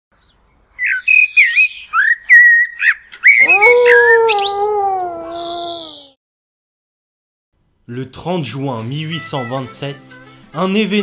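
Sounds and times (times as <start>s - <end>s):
long howl-like call: 3.3s - 6.2s.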